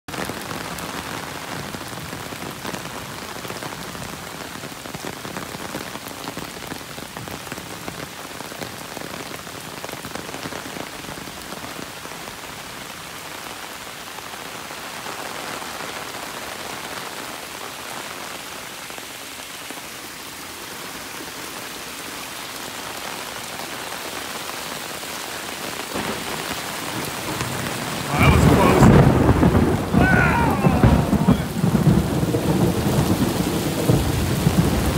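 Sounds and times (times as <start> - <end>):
heavy rain pouring on stone and water: 0.0 - 34.9
thunderclap with deep rumble: 26.0 - 34.9.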